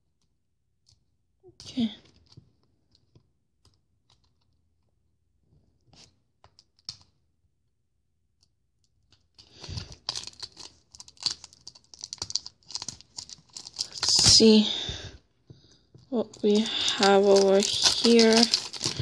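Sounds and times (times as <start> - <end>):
plastic crinkling and clicking: 9.1 - 14.6, 15.5 - 19.0.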